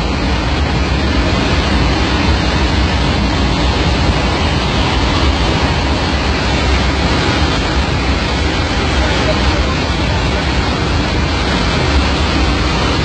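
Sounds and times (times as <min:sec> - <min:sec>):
airliner cabin roar: 0:00.0 - 0:13.0.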